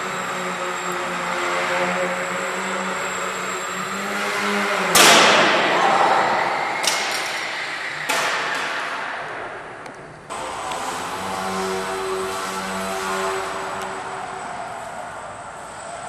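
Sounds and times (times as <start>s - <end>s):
model plane motor humming: 0.0s - 5.0s
loud crashing impact: 4.9s - 9.7s.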